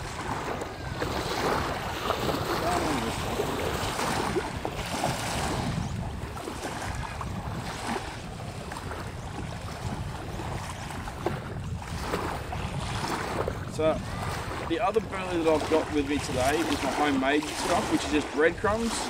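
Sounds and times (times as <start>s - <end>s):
waves lapping against bank: 0.0s - 19.0s
wind rumbling on microphone: 0.0s - 19.0s.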